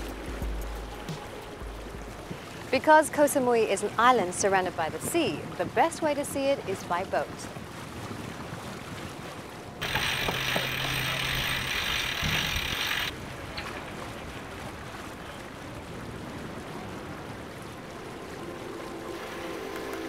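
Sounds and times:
sea and wind rushing: 0.0s - 20.0s
loud hissing rush of water: 9.8s - 13.2s.

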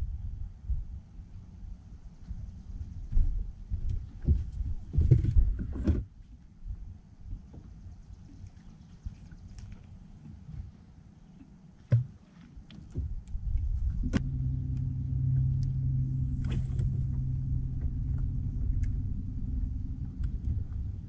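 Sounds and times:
electric boat motor humming: 13.8s - 21.0s.

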